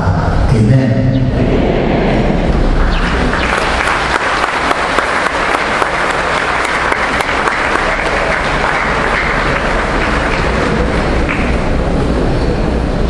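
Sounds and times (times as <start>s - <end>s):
crowd applauding: 2.6s - 12.1s.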